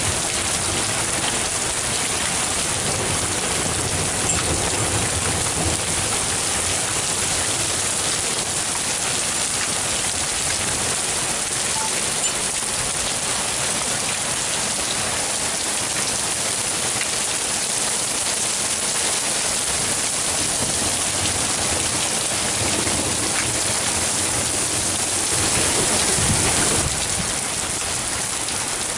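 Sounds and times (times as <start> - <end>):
hail and rain pelting down: 0.0 - 28.9.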